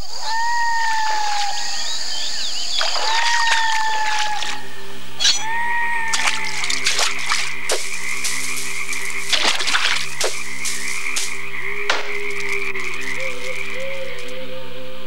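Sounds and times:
frogs croaking: 0:00.0 - 0:15.0
drawn-out wavering call: 0:10.2 - 0:15.0.

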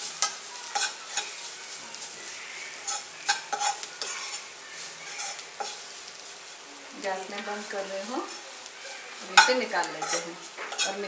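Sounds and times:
spoon scraping a pan: 0:00.0 - 0:06.6, 0:07.2 - 0:11.0
onions sizzling in oil: 0:00.0 - 0:11.0.

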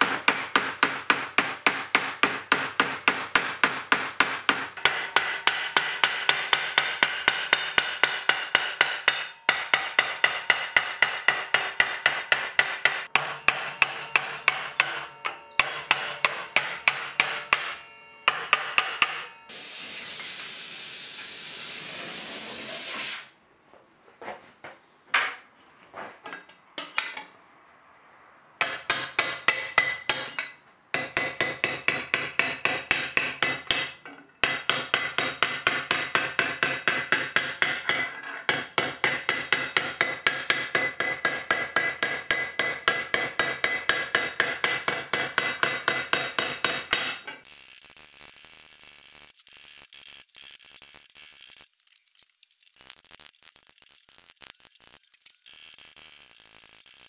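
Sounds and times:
hammer beating steel plate: 0:00.0 - 0:19.6, 0:28.6 - 0:30.4, 0:31.0 - 0:47.4
loud steady hiss: 0:19.5 - 0:23.4.

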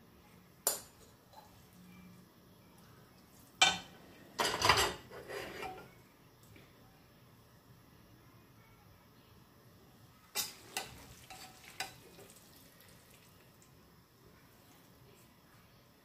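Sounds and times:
metal tongs clacking on pan: 0:10.3 - 0:12.0.

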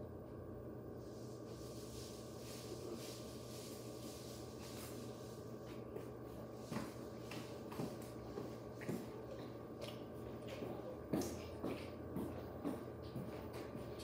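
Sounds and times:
ceiling fan humming: 0:00.0 - 0:14.0
faint taps and rustles: 0:05.6 - 0:14.0.

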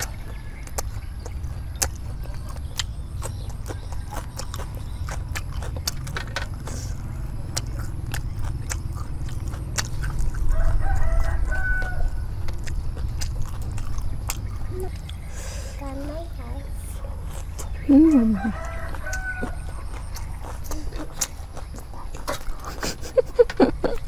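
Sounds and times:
person chewing: 0:00.0 - 0:15.7, 0:16.9 - 0:24.0
low rumble: 0:00.0 - 0:22.7
rooster crowing: 0:10.3 - 0:12.4, 0:18.1 - 0:20.0.

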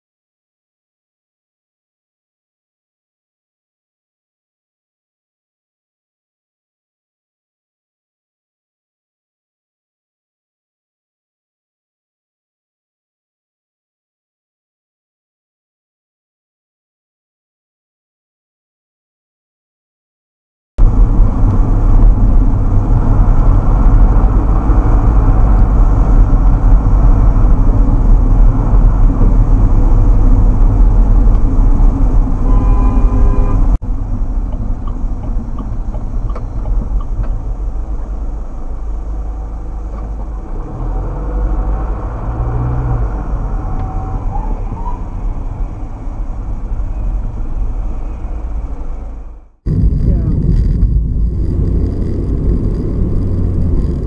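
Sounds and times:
car road and engine rumble: 0:20.8 - 0:54.0.

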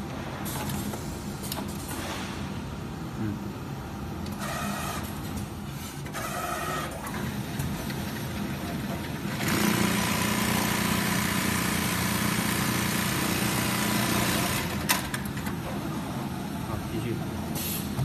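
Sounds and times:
sewing machine running: 0:09.3 - 0:15.1.

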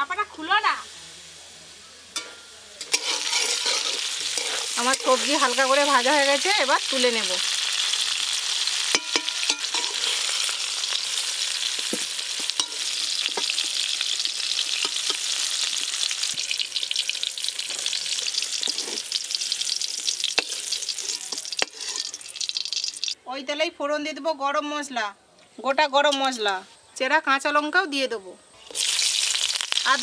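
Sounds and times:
vegetables sizzling in oil: 0:00.0 - 0:23.2, 0:28.6 - 0:30.0.

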